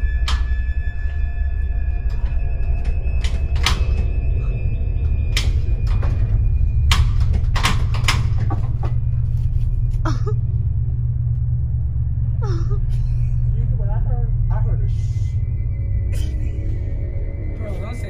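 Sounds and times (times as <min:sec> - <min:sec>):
rising squeak: 0:00.0 - 0:09.9
low rumble: 0:00.0 - 0:18.0
sharp knocks and clatters: 0:05.3 - 0:10.2.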